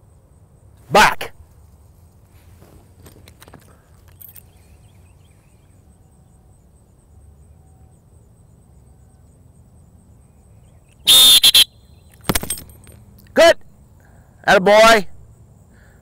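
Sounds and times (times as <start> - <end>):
shrill dog whistle blast: 11.0 - 11.8.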